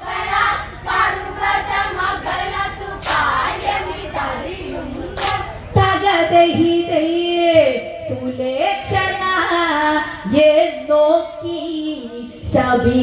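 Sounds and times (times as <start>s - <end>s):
women singing in chorus: 0.0s - 13.0s
hand claps: 3.0s - 3.3s, 5.2s - 5.5s.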